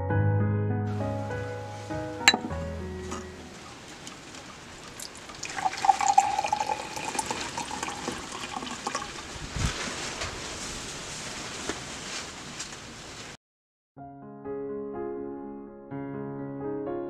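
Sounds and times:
liquid pouring into a glass: 3.5 - 9.3.

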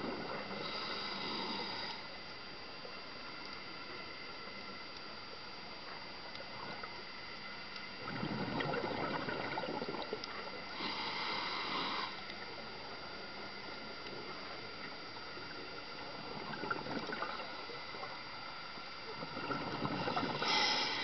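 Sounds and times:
steady faint hiss: 0.0 - 21.0
exhaled bubbles gurgling: 7.9 - 12.8, 14.1 - 18.3, 19.0 - 21.0.

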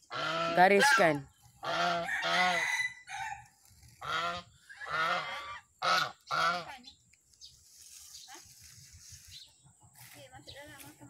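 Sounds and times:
goose honking: 0.0 - 2.8, 4.0 - 6.8.

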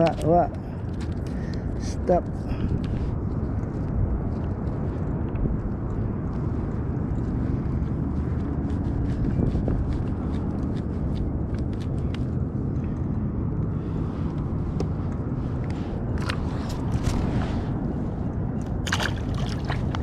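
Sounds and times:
low wind rumble on microphone: 0.0 - 20.0.

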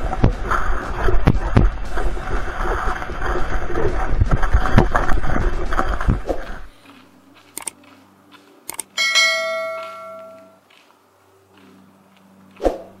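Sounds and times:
bell-like chime ringing: 9.0 - 10.6.

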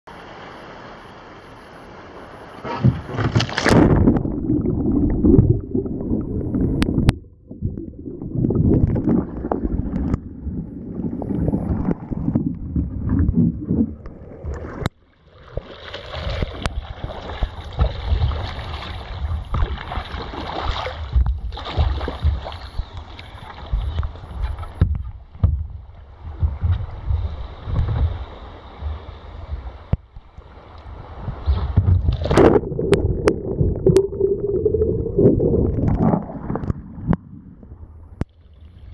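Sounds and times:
water splashing against hull: 1.7 - 38.9
underwater gurgling: 2.6 - 38.9
paddle strokes: 11.7 - 33.4
wind on microphone: 21.0 - 30.2, 30.8 - 38.2.

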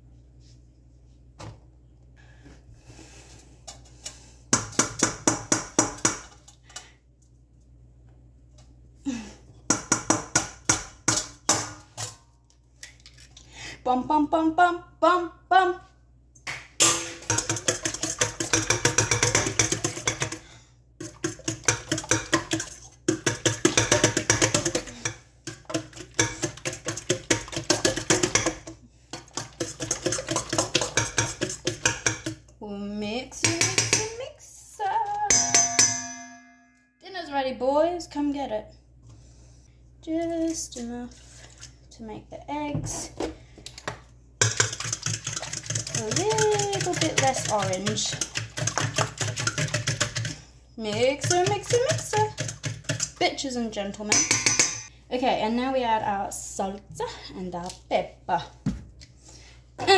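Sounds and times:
egg tapping on metal bowl: 9.7 - 11.8, 16.5 - 20.4, 21.0 - 32.4, 33.4 - 34.2, 35.3 - 36.5, 44.4 - 53.2, 54.1 - 54.9
bowl ringing faintly: 35.3 - 37.0.

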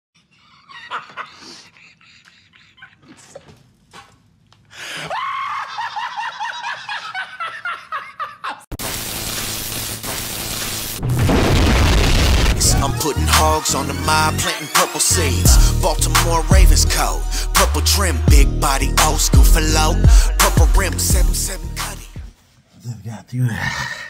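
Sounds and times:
man laughing: 0.4 - 3.1, 5.0 - 8.7
loud steady hiss: 8.8 - 11.0.

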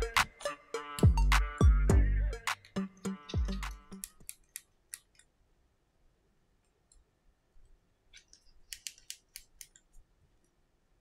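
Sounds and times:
screwdriver clicking on small screws: 8.2 - 9.9.

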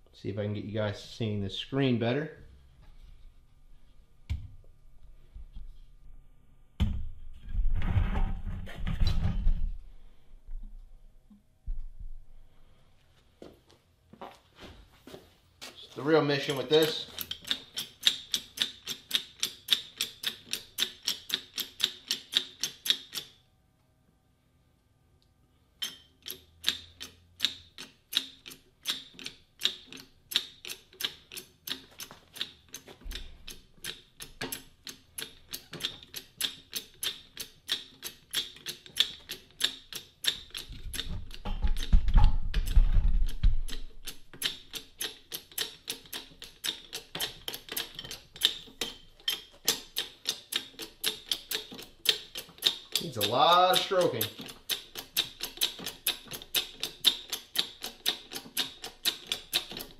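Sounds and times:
hydraulic jack clicking: 16.8 - 23.4, 25.8 - 59.9.

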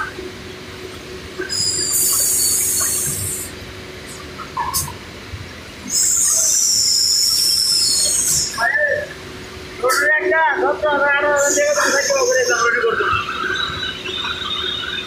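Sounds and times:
printing machine humming: 0.0 - 15.0
high-pitched hissing squeal: 1.4 - 3.5, 5.8 - 9.0, 11.2 - 13.9.

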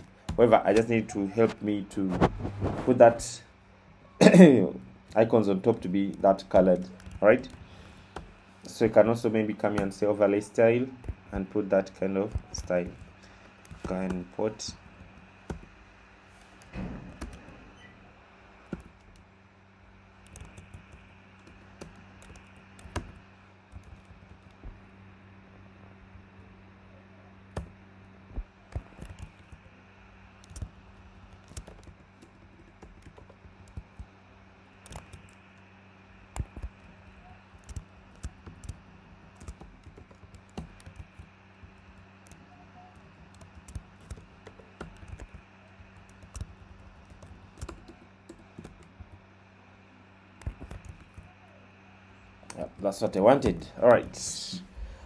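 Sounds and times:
faint low hum: 0.0 - 55.0
typing on a keyboard: 5.0 - 8.4, 11.0 - 15.8, 16.6 - 17.6, 20.2 - 24.8, 28.7 - 29.7, 30.4 - 34.1, 34.7 - 35.6, 36.3 - 49.2, 50.4 - 51.4.

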